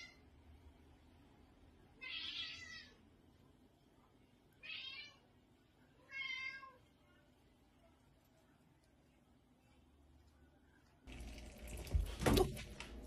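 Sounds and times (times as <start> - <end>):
cat meowing: 2.0 - 3.0, 6.1 - 6.8.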